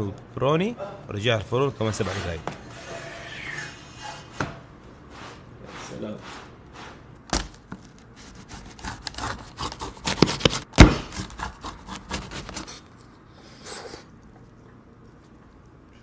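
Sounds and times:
pizza cutter crunching through crust: 0:08.0 - 0:12.9.

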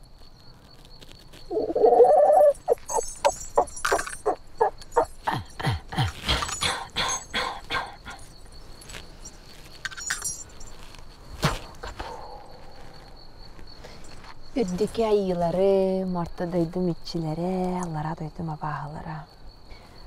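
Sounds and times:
woman imitating animal calls: 0:01.5 - 0:03.0.

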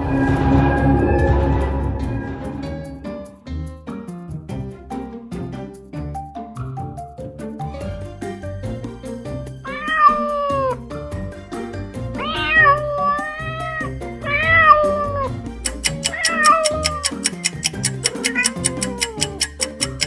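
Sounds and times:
background music: 0:00.0 - 0:20.0
cat meowing: 0:09.7 - 0:10.8, 0:12.2 - 0:15.4, 0:16.0 - 0:17.2, 0:18.1 - 0:19.6
clicking beat: 0:15.5 - 0:20.0.

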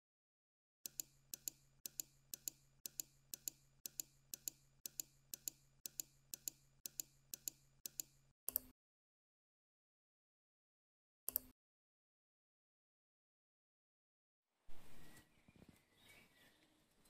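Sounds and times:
clock-like ticking: 0:00.9 - 0:08.7.

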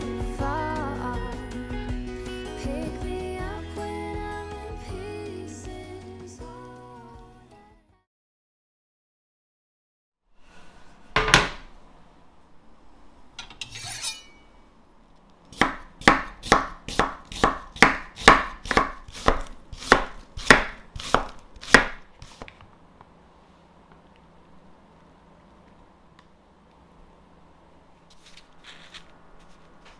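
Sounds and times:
knife chopping on wooden board: 0:15.5 - 0:22.5
short rustle: 0:28.0 - 0:29.9.

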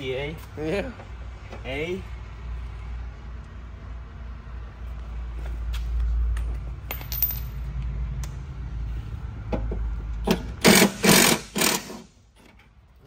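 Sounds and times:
impact wrench hammering: 0:09.6 - 0:12.1.

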